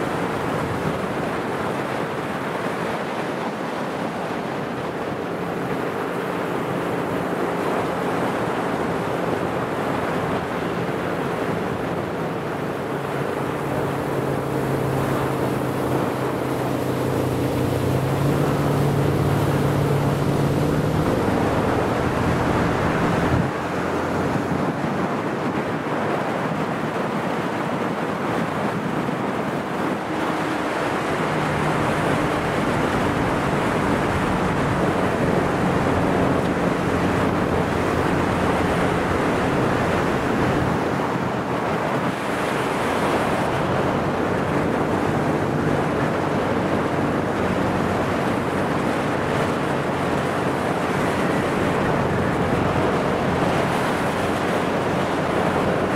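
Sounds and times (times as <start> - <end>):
low boat engine hum: 0.0 - 55.9
water rushing: 0.0 - 55.9
wind buffeting microphone: 0.0 - 55.9.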